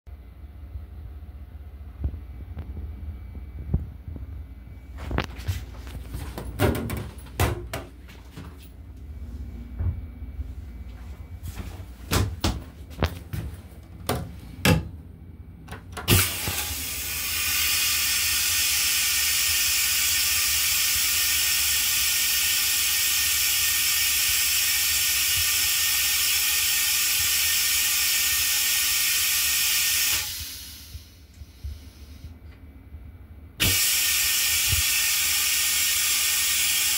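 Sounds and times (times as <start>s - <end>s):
knocks and clicks: 6.3s - 8.0s
low rumble: 8.8s - 12.0s
toilet flushing hiss: 16.1s - 32.3s, 33.6s - 36.9s.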